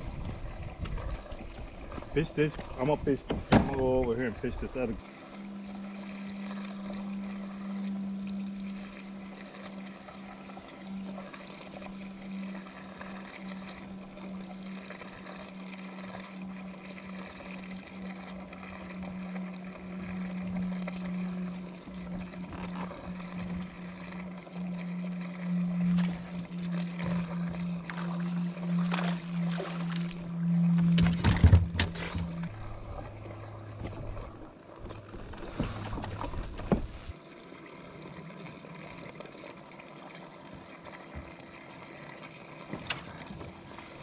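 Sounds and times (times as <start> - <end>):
electric boat motor humming: 0.0 - 44.0
water swishing along hull: 0.0 - 44.0
knocks or splashes: 2.5 - 4.1.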